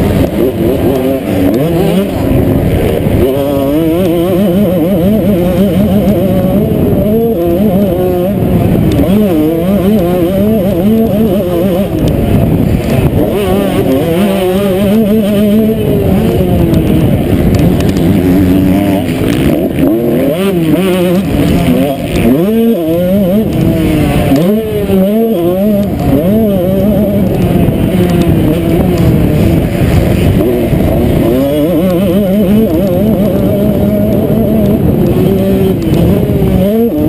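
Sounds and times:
motorbike engine revving: 0.0s - 37.0s.

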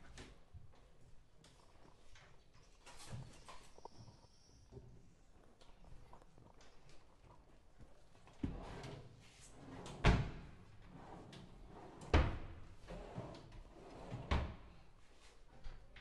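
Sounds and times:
drawers opening and shutting: 8.4s - 14.6s.

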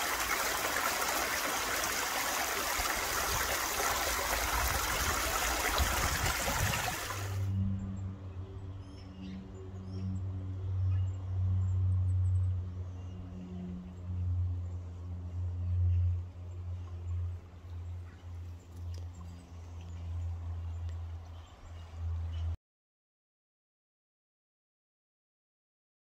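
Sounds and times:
stream trickling over stones: 0.0s - 7.4s.

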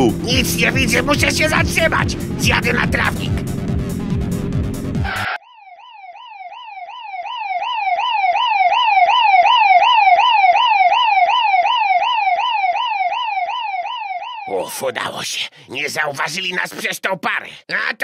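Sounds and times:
police siren yelping: 0.0s - 3.8s, 5.0s - 14.7s.

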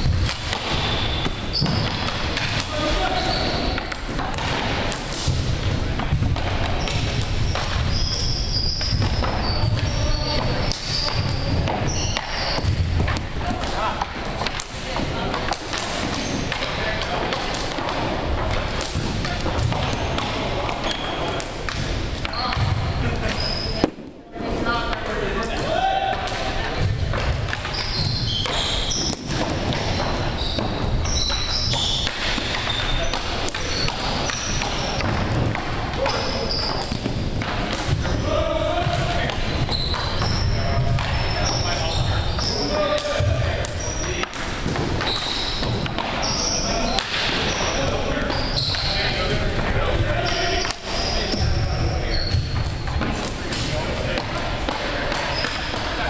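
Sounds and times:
sneakers squeaking on hardwood: 0.0s - 24.0s, 25.7s - 56.0s
sticks and balls knocking on floor: 0.0s - 24.0s
hockey sticks and ball clacking: 0.0s - 56.0s.

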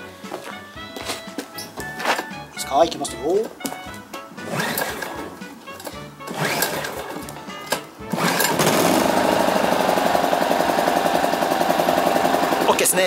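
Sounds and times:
recoil starter pull: 4.4s - 13.0s
generator engine running: 6.2s - 13.0s.

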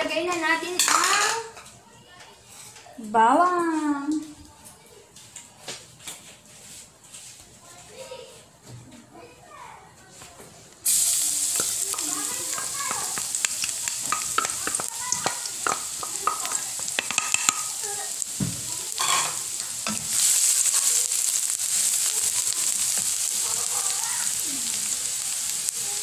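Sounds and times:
garlic sizzling in oil: 10.8s - 26.0s
wooden spatula stirring: 11.4s - 24.2s.

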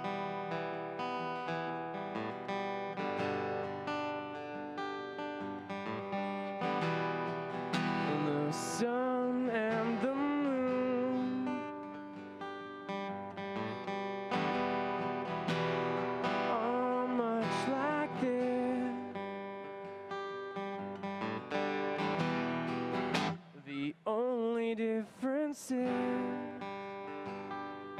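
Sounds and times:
strummed acoustic guitar: 0.0s - 27.9s
man singing: 7.9s - 11.9s, 16.3s - 19.2s, 23.6s - 26.8s.

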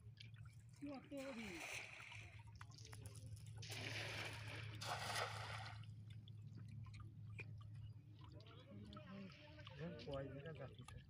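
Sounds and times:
splashing rustle: 3.6s - 5.9s.

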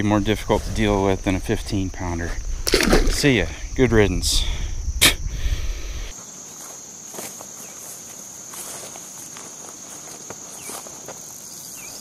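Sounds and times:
high-pitched insect drone: 0.2s - 8.8s
grass rustling: 5.7s - 12.0s
footsteps in grass: 6.1s - 12.0s.

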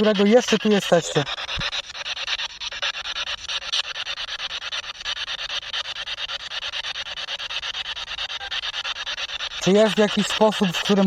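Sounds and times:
choppy pulsing radio static: 0.0s - 2.4s, 9.6s - 11.0s.

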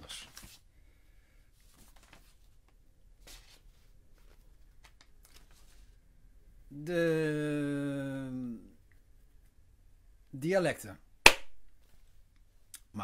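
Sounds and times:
paper rustling: 1.6s - 6.0s.

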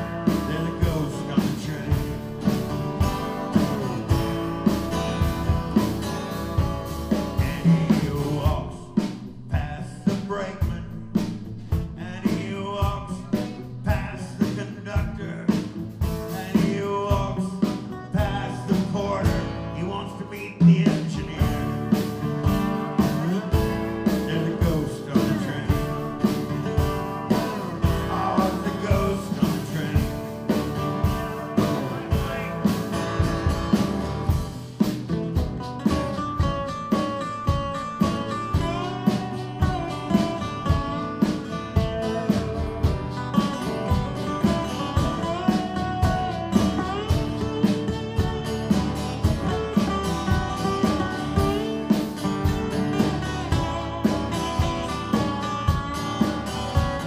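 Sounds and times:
lap steel guitar sliding lead: 0.0s - 8.6s, 21.3s - 57.0s
acoustic guitars strumming: 0.0s - 57.0s.

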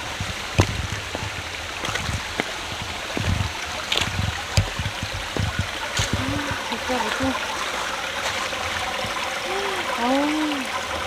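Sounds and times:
low thumps: 0.0s - 7.4s
stream running over rocks: 0.0s - 11.0s.

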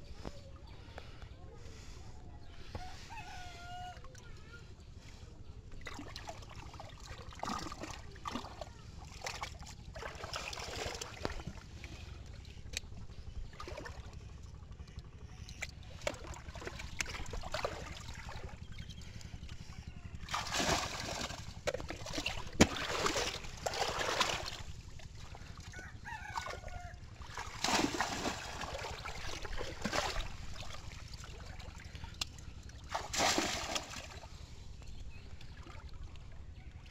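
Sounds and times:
shallow water splashing: 5.0s - 14.3s, 15.2s - 34.6s.

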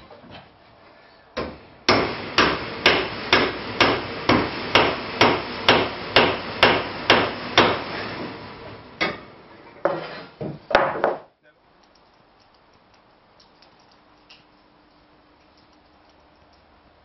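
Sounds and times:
claw hammer strikes: 1.4s - 7.8s.

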